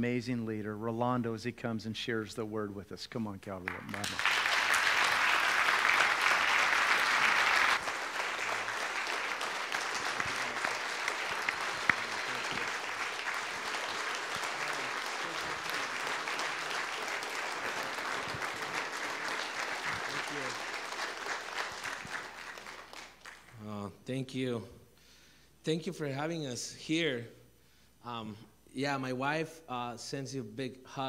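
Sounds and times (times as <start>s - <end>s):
congregation applauding: 3.7s - 23.6s.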